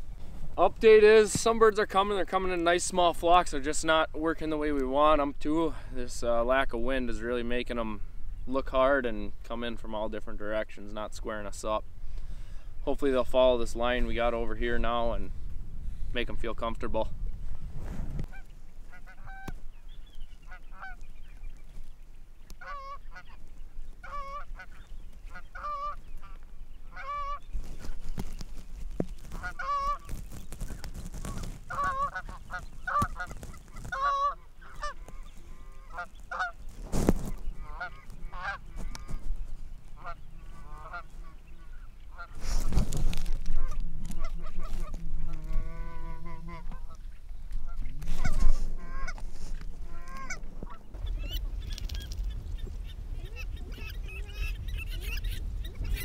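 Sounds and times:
goose honking and clucking: 18.3 - 19.6, 20.4 - 21.0, 22.6 - 23.4, 24.0 - 27.4, 29.3 - 30.1, 30.7 - 36.6, 37.2 - 39.3, 39.9 - 42.7, 43.4 - 56.0.

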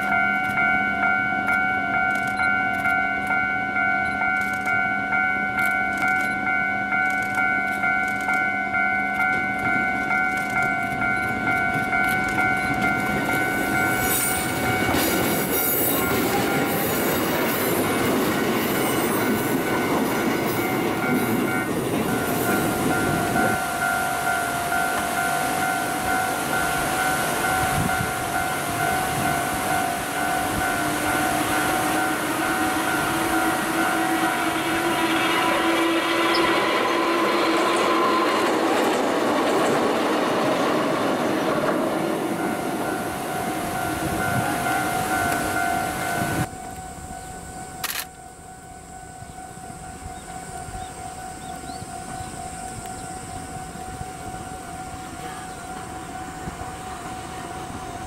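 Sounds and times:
level crossing alarm chime: 0.0 - 18.2, 18.8 - 34.5
electric train passing: 0.0 - 58.0.

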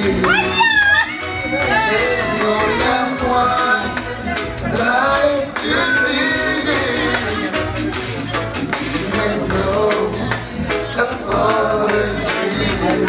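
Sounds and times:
person singing: 0.0 - 13.0
reggae music: 0.0 - 13.0.

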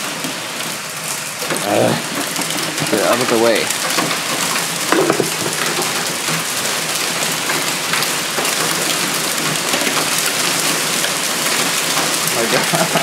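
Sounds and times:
heavy rain pouring: 0.0 - 13.0
raindrops striking: 0.0 - 13.0.

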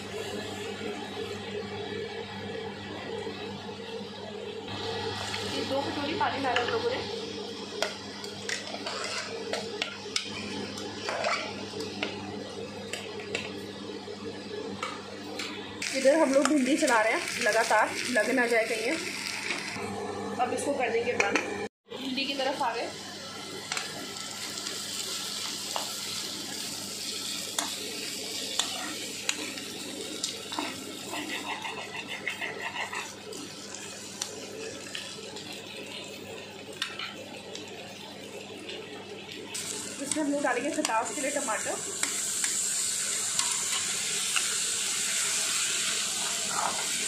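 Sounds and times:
okra sizzling in a pan: 4.8 - 13.5, 15.8 - 19.8, 22.0 - 47.0
metal spoon scraping pot: 8.7 - 9.4.

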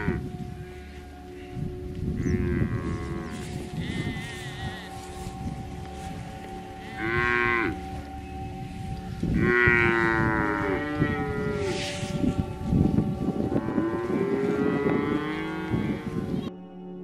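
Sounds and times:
cows mooing: 0.0 - 0.3, 2.2 - 8.1, 9.2 - 16.3.

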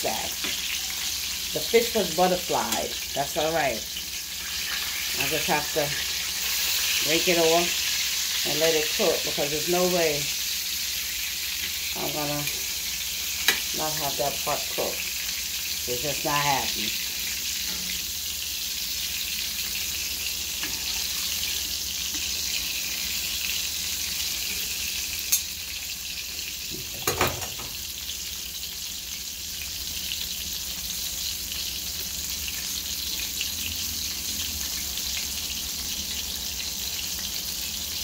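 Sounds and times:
fish frying in hot oil: 0.0 - 38.0.

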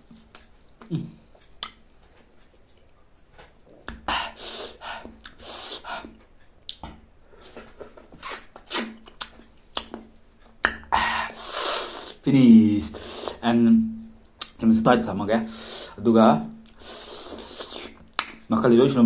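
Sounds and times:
wet chewing and slurping: 7.4 - 9.9, 16.7 - 18.1.

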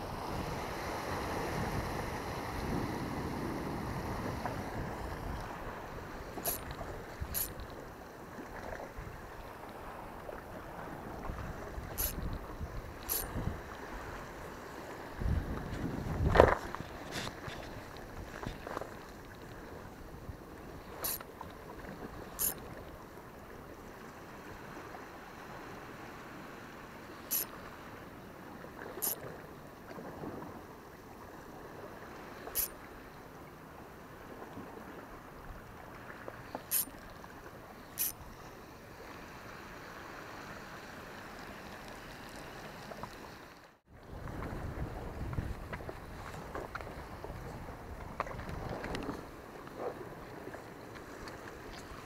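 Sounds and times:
wind on microphone: 0.0 - 7.7, 10.2 - 18.8, 43.9 - 50.5.

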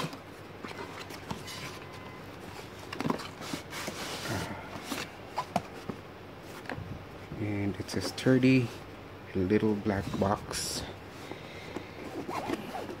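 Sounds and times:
cardboard rustling and sliding: 0.0 - 6.8, 9.9 - 13.0.

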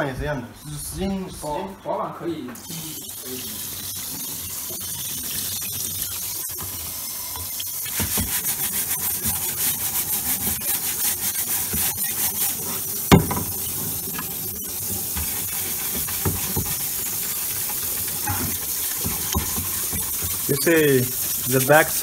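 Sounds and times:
running water hissing: 0.0 - 22.0
hand scrubbing plate: 2.5 - 22.0.

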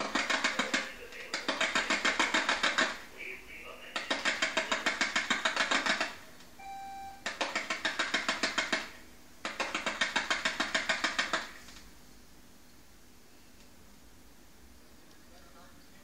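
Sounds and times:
short beep: 6.6 - 7.2.

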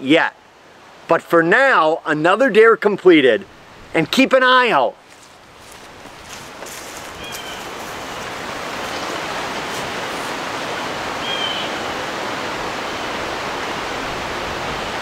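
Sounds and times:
steady rushing hiss: 3.4 - 15.0.

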